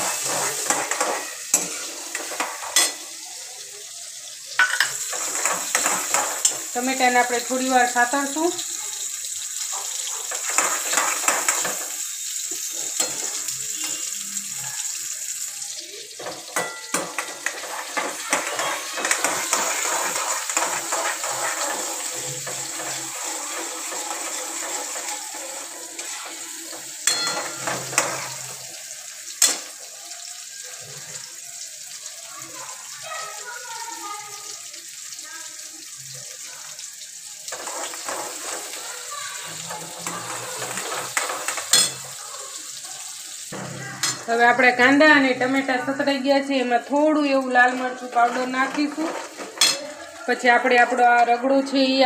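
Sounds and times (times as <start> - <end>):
metal spoon scraping pan: 0.0 - 3.0, 4.6 - 8.2, 16.2 - 28.6, 37.5 - 38.9, 39.6 - 42.2, 47.5 - 50.0
onions sizzling in oil: 0.0 - 52.0.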